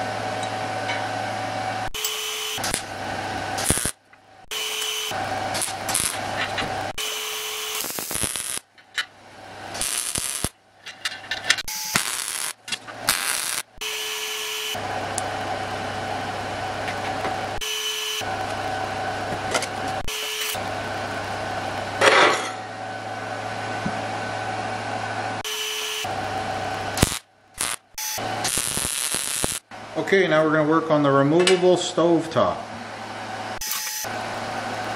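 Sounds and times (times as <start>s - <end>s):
machine drone with low hum: 0.0s - 30.1s, 32.6s - 34.9s
welding bursts: 1.9s - 8.8s, 9.6s - 10.6s, 11.6s - 22.0s, 25.4s - 29.7s.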